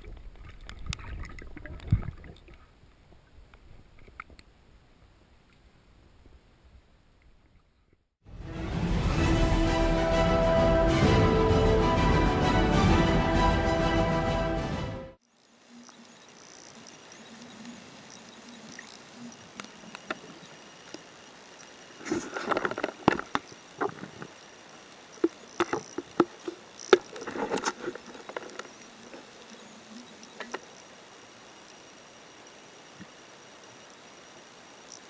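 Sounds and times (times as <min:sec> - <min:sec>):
steady hiss: 0:15.2 - 0:35.0
sharp clicks and crackling: 0:15.8 - 0:30.9.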